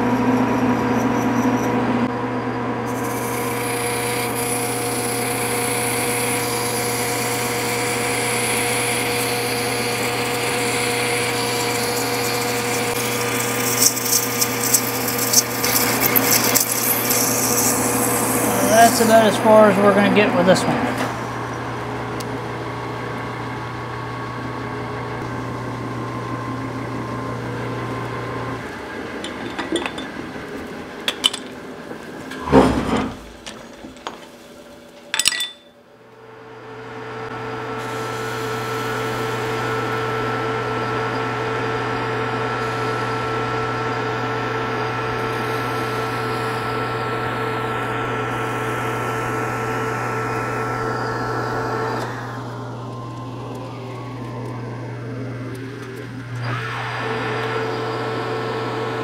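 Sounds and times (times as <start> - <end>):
metal lathe humming: 0.0 - 34.2, 36.4 - 59.0
lathe whine: 0.0 - 34.9, 36.1 - 59.0
sharp knocks and clanks: 29.2 - 30.2, 32.3 - 34.3.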